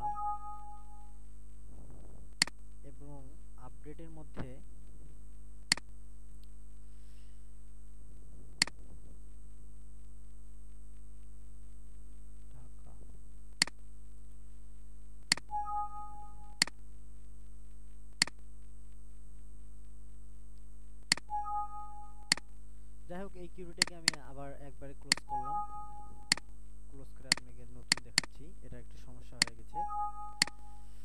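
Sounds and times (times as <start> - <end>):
two-tone computer alert: 0.0 - 1.1, 15.4 - 16.7, 21.2 - 22.4, 25.1 - 26.4, 29.7 - 31.0
electrical hum: 0.0 - 31.0
mouse clicks: 5.7 - 5.9, 15.3 - 15.5, 20.6 - 21.3, 26.3 - 26.5, 27.3 - 28.4, 30.4 - 30.7.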